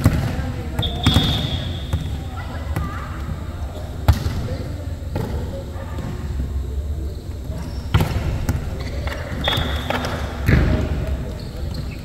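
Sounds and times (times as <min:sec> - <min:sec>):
shoe squeak: 0:00.8 - 0:02.1, 0:07.1 - 0:07.9, 0:08.9 - 0:10.1, 0:11.3 - 0:12.0.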